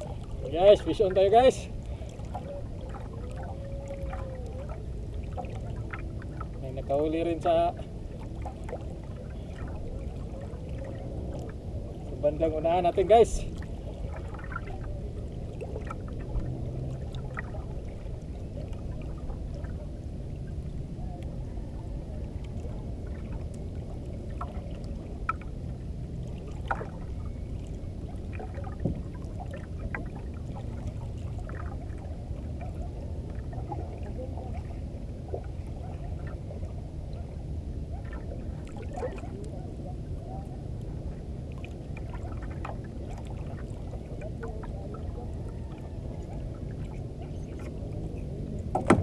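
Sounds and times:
low rumble of wind: 0:00.0 - 0:49.0
sea: 0:00.0 - 0:49.0.

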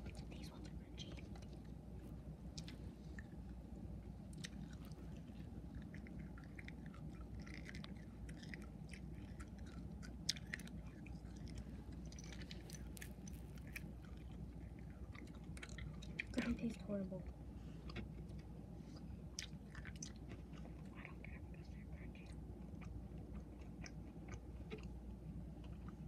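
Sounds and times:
people chewing food: 0:00.0 - 0:26.0
small crunches: 0:04.3 - 0:16.5.

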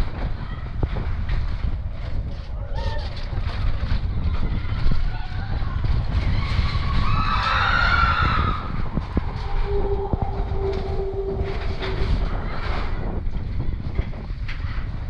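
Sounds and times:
coaster wheels rumbling on track: 0:00.0 - 0:15.0
steady humming tone: 0:07.9 - 0:14.4
high wavering sound: 0:08.4 - 0:13.3.

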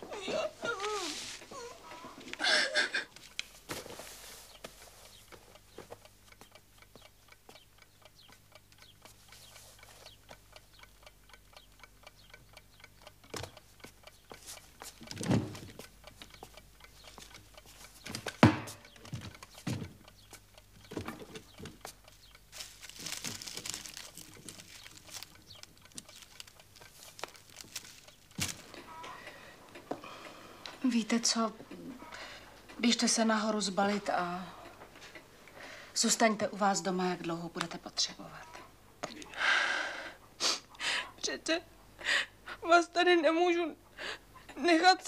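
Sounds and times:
cloth and wicker basket rustling: 0:00.0 - 0:02.4, 0:03.5 - 0:05.3, 0:22.5 - 0:28.8
clock ticking: 0:01.7 - 0:39.6
sharp knocks: 0:18.3 - 0:18.8.

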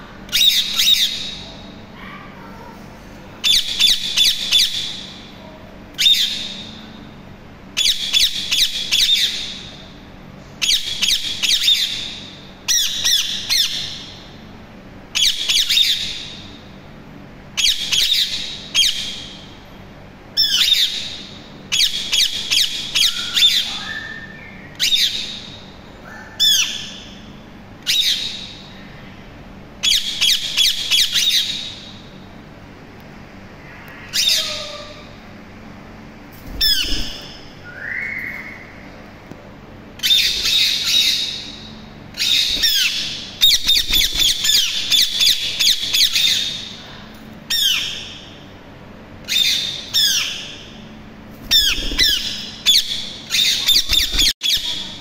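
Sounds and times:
soft low parakeet calls: 0:33.6 - 0:35.2
parakeets squawking: 0:33.9 - 0:35.2, 0:36.5 - 0:37.4, 0:42.2 - 0:46.8, 0:51.5 - 0:55.0.

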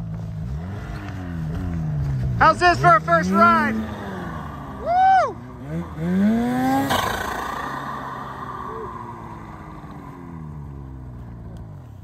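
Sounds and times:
snowmobile engine pulling away: 0:00.0 - 0:12.0.

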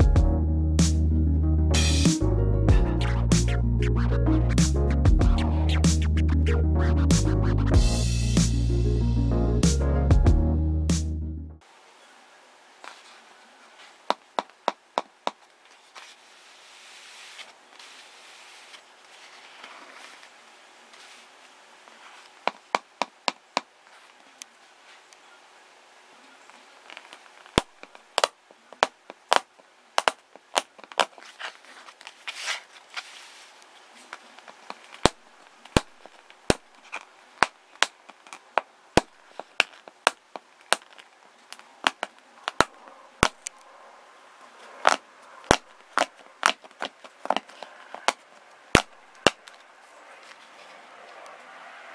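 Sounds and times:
finger tapping hardened tape: 0:27.6 - 0:31.1.

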